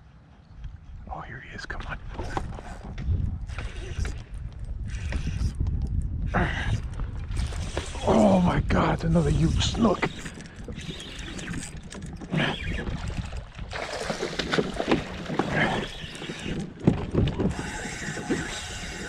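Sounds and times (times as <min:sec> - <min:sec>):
water splashing and sloshing: 0:01.8 - 0:05.4, 0:06.9 - 0:19.0
fishing reel drag whirring: 0:02.2 - 0:05.7, 0:06.6 - 0:08.3, 0:09.1 - 0:16.8, 0:17.4 - 0:19.0
fish thrashing at surface: 0:12.2 - 0:15.8.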